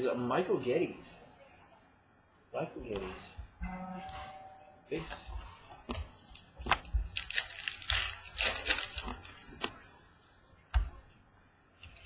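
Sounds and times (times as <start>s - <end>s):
packaging crinkling and rustling: 6.6s - 9.8s.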